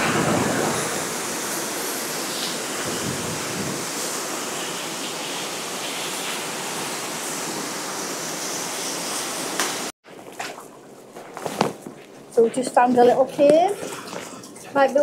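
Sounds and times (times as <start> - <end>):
waterfall pouring over rocks: 0.0 - 9.9.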